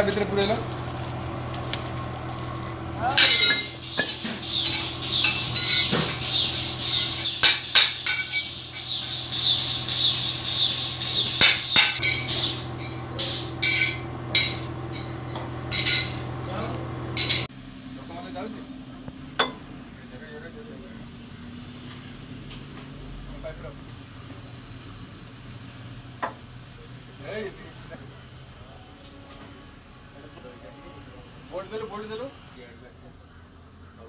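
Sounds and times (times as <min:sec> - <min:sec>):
steady low hum: 0:00.0 - 0:21.4
small birds chirping: 0:03.2 - 0:13.6.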